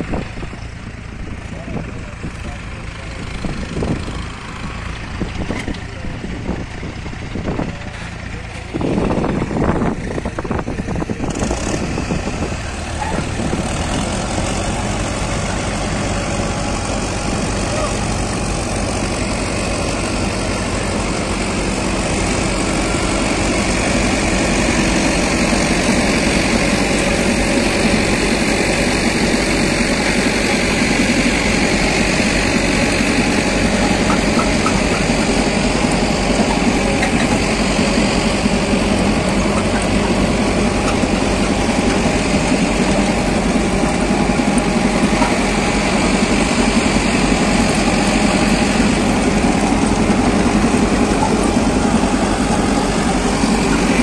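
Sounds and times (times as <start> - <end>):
tractor diesel engine running: 0.0 - 54.0
conveyor working: 12.3 - 54.0.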